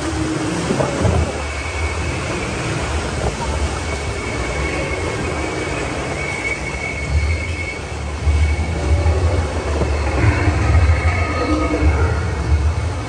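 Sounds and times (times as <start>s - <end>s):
rushing churning water: 0.0s - 13.0s
faint high squeal: 3.6s - 12.4s
low rumble: 7.0s - 13.0s.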